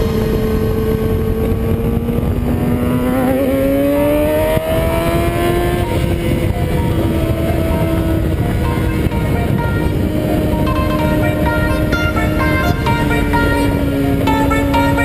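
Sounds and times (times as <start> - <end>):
motorcycle engine accelerating: 0.0 - 15.0
wind rush over microphone: 0.0 - 15.0.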